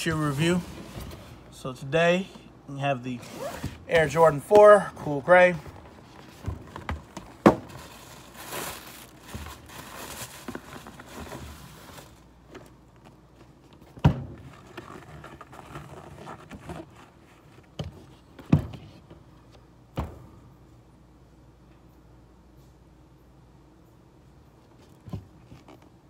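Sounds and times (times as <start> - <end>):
packaging rustling: 5.5 - 12.3.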